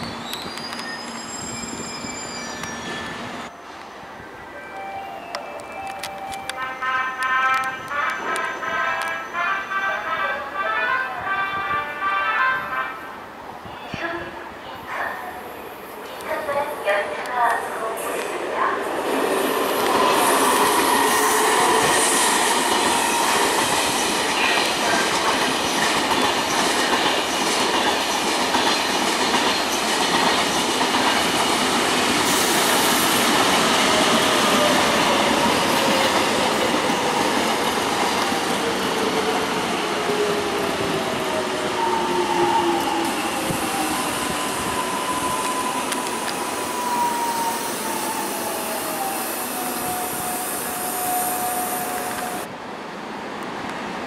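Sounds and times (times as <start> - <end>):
train wheels rumbling on rail: 17.1 - 49.1.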